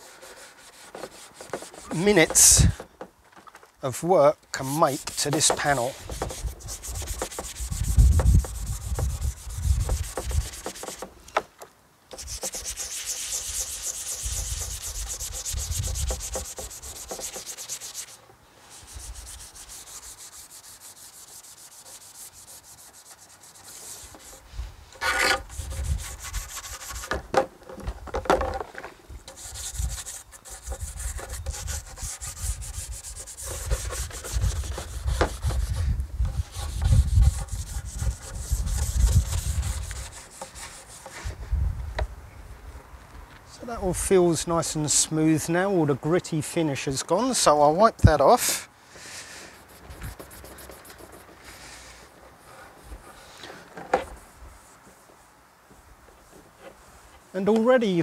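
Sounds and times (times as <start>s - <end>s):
brush scrubbing plastic: 0.0s - 2.7s, 4.6s - 11.1s, 12.1s - 24.5s, 25.3s - 27.2s, 29.3s - 41.2s, 49.6s - 51.4s.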